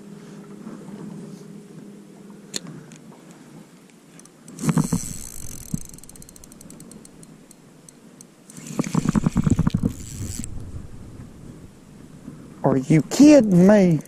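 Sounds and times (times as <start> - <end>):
spinning reel gears ticking: 4.5 - 10.6, 13.2 - 13.8.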